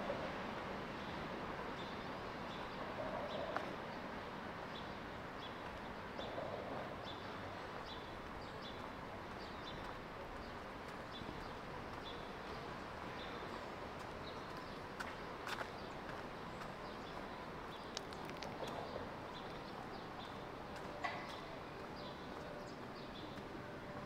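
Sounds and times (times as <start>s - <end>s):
steady city background hum: 0.0s - 24.0s
faint light ticks: 17.7s - 19.6s.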